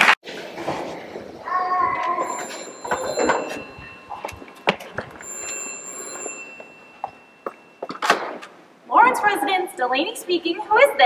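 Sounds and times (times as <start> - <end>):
telephone ringing: 2.1 - 8.5.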